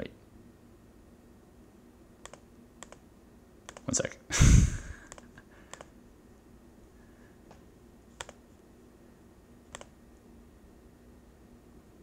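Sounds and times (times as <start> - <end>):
faint steady hum: 0.0 - 12.0
computer mouse button clicks: 2.2 - 3.0.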